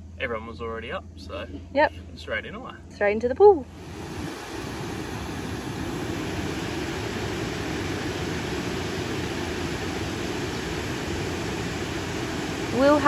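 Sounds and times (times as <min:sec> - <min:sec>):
river water rushing over concrete: 0:03.7 - 0:13.0.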